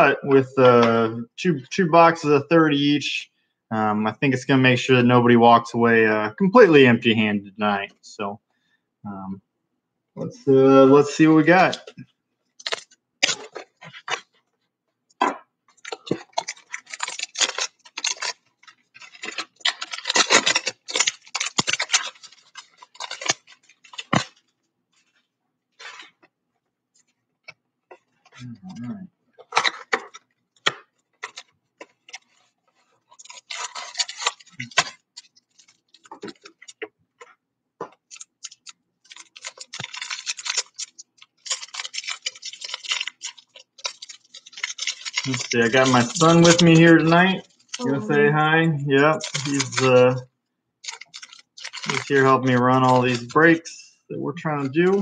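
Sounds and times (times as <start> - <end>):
plastic wrap crinkling: 11.0 - 14.7, 15.6 - 53.6, 54.4 - 55.0.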